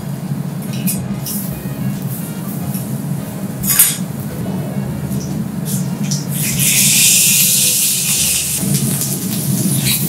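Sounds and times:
low even rumble: 0.0 - 10.0
food sizzling on griddle: 6.3 - 10.0.

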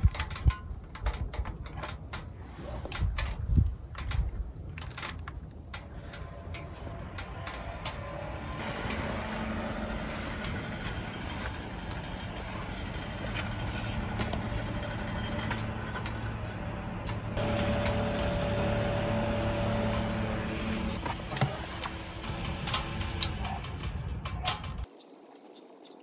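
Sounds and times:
small electric fans humming: 3.0 - 26.0
higher tone: 6.0 - 23.5.

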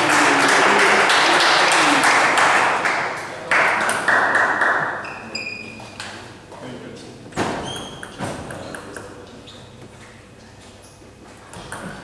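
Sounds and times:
small crowd applauding: 0.0 - 5.0.

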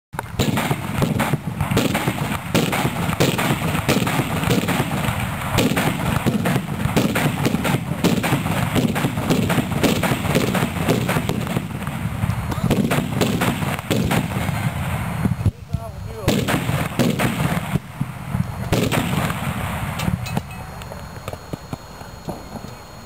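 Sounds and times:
carbide cannon bangs: 0.2 - 15.4, 16.2 - 18.1, 18.7 - 20.5.

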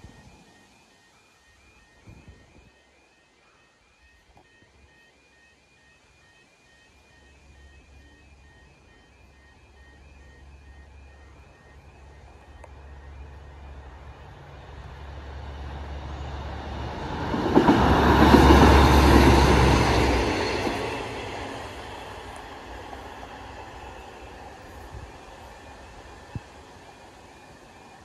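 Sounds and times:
train passing: 0.0 - 28.0
wheel rumble and rail clatter: 10.1 - 28.0.

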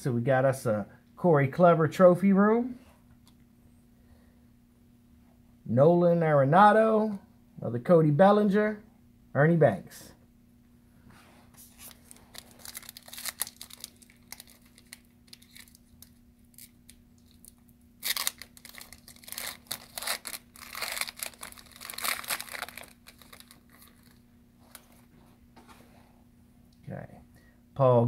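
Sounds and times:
foil pack crinkling and tearing: 11.7 - 24.9
trading cards rustling and clicking: 11.7 - 25.0.

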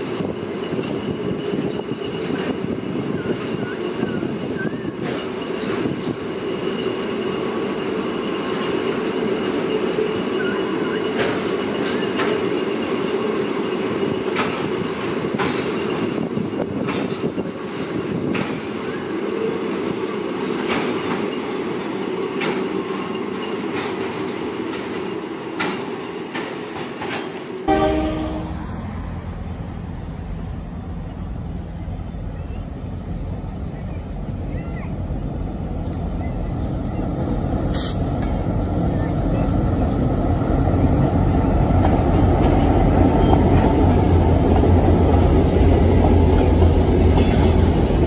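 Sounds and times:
freight train rumbling past: 0.0 - 48.0
train wheels clicking: 0.1 - 27.7.

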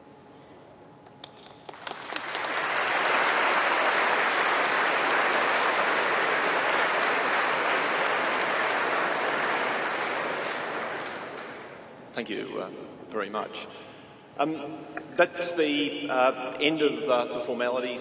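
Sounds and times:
audience applauding: 1.3 - 11.8.

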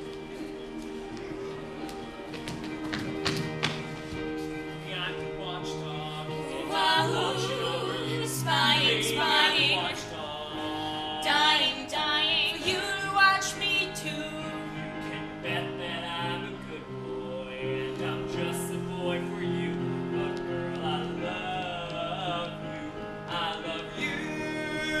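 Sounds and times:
held accompaniment chords: 0.0 - 25.0
person singing with vibrato: 4.9 - 25.0.

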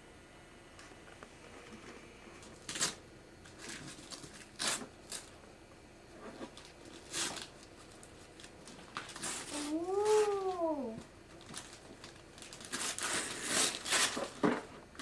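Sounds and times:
wrapping paper rustling: 2.4 - 5.4, 6.2 - 15.0.

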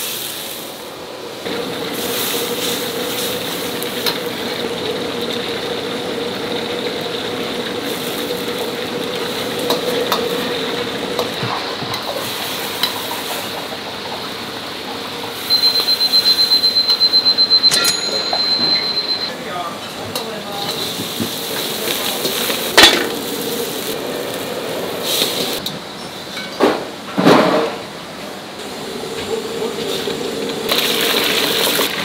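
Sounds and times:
food frying and sizzling: 0.0 - 17.3, 20.1 - 25.7, 28.6 - 32.0
high-pitched electronic beeps: 15.5 - 19.4.

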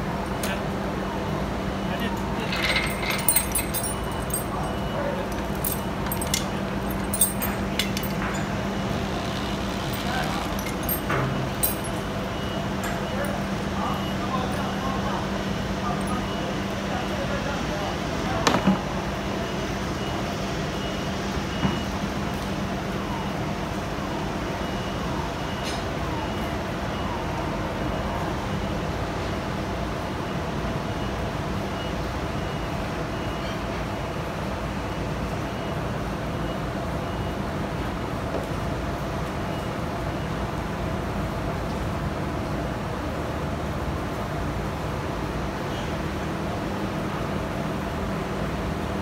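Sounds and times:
steady machinery hum: 0.0 - 49.0
vehicle reversing alarm beeping: 1.1 - 8.8, 9.5 - 18.4, 19.0 - 29.3, 30.2 - 34.0, 34.7 - 38.0
steel chain clinking: 2.4 - 8.6, 9.8 - 12.1.

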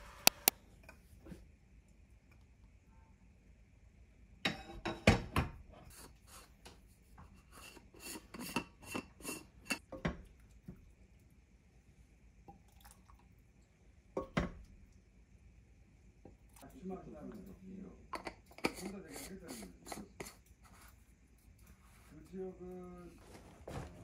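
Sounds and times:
kitchenware clinking and knocking: 4.5 - 5.6.

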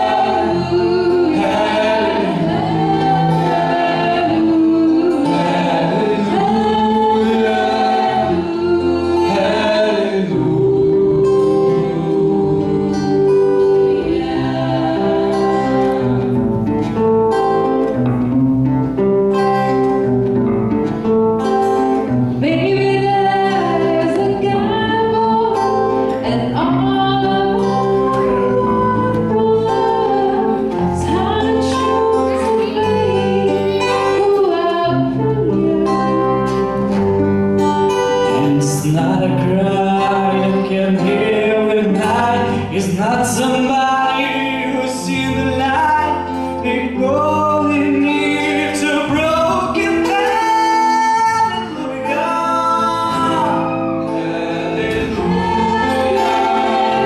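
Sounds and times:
choir singing: 0.0 - 18.0, 21.6 - 37.1, 51.6 - 57.0
acoustic guitars: 0.0 - 57.0
bass guitar: 0.0 - 57.0
keyboard chords: 0.0 - 57.0.

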